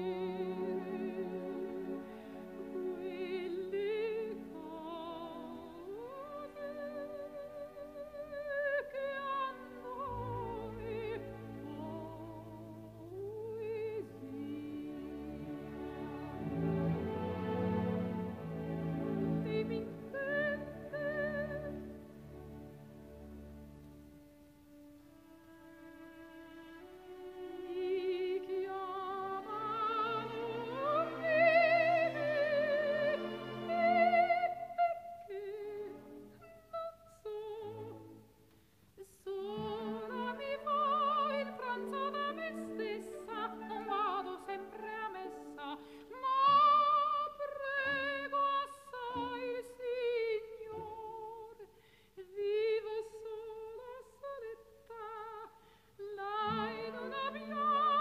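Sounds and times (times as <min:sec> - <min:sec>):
person singing with vibrato: 0:39.0 - 0:58.0.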